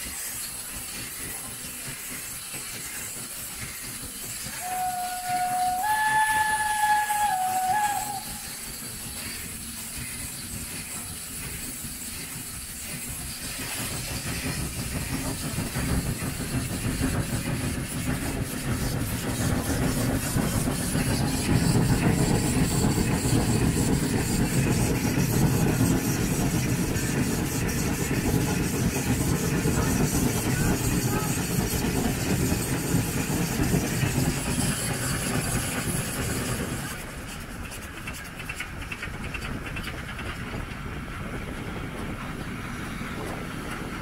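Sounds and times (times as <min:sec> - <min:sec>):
locomotive exhaust rumble: 0:00.0 - 0:44.0
steam hissing: 0:00.0 - 0:44.0
steam whistle: 0:04.5 - 0:08.7.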